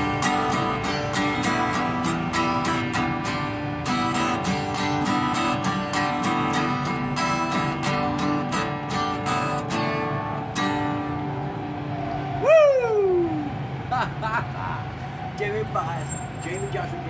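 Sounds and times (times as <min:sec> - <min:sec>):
acoustic guitar strumming: 0:00.0 - 0:12.4.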